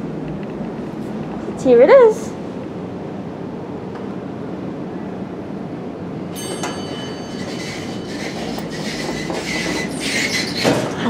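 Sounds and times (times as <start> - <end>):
elevator low hum: 0.0 - 11.0
elevator ringing tone: 5.8 - 10.6
elevator doors sliding open: 6.1 - 11.0.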